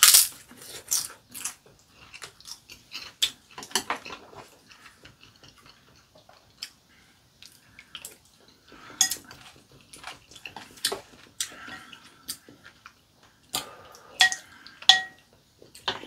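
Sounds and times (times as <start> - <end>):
chewing: 0.5 - 14.9
utensils clinking on bowls: 9.0 - 9.4, 14.2 - 15.2.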